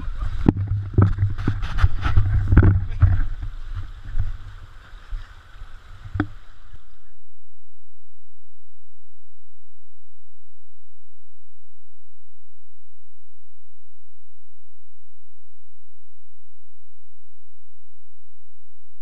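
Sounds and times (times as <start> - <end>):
seawater surging and splashing: 0.0 - 7.1
wind buffeting microphone: 0.0 - 7.1.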